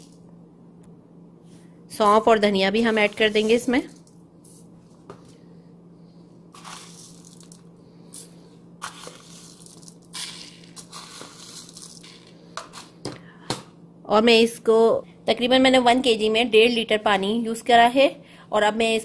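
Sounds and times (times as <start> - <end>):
steady low hum: 0.0 - 19.0
seeds rustling into pot: 6.5 - 12.9.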